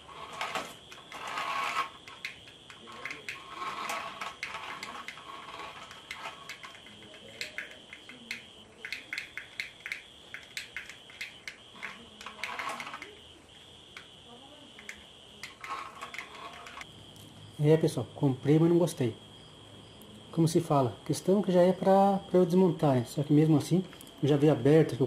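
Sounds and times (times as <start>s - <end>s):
toy car motor whirring: 0.0s - 13.3s, 14.7s - 16.9s
rapid sharp clicks: 0.9s - 13.2s.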